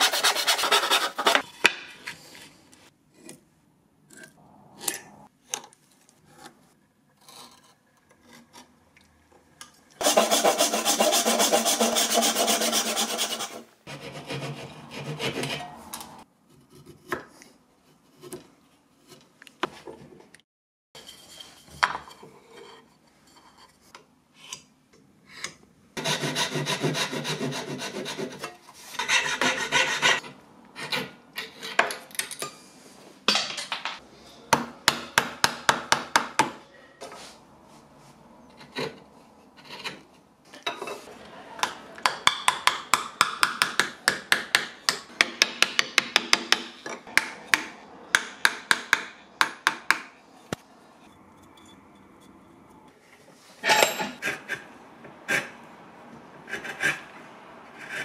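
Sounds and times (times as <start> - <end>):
plane rasping on wood: 0.0 - 1.4, 10.0 - 15.7, 26.0 - 28.4
chisel scraping wood: 0.0 - 1.6, 10.0 - 18.4, 56.5 - 57.1.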